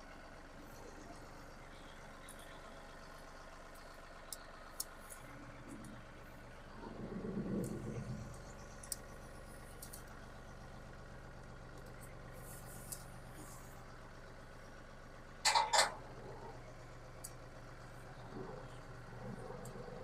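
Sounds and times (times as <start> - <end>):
tractor diesel engine idling: 0.0 - 20.0.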